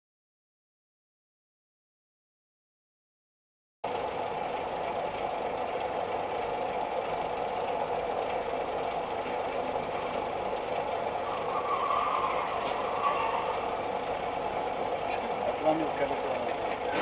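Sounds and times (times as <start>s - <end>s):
vehicle engine and road noise: 3.8s - 17.0s.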